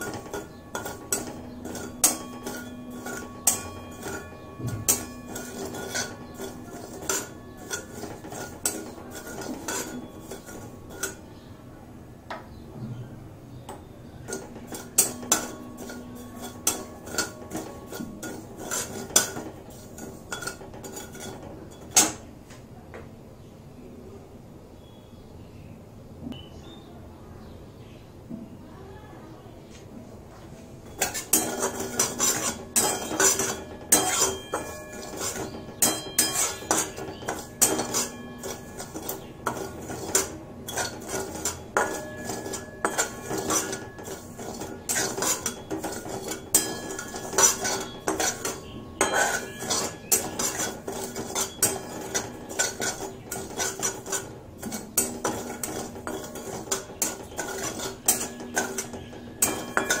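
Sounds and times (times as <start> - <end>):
spatula scraping metal pan: 0.0 - 11.5, 13.6 - 22.3, 30.8 - 60.0.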